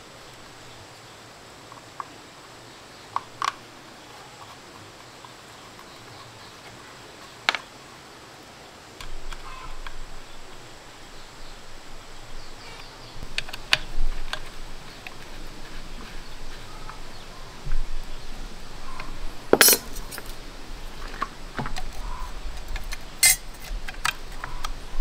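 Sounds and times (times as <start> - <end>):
clattering and rustling: 19.5 - 22.0.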